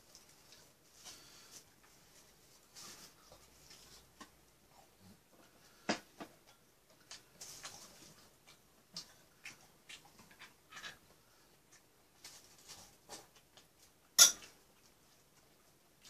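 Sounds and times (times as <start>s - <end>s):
rustling of seaweed sheets: 0.0s - 4.2s.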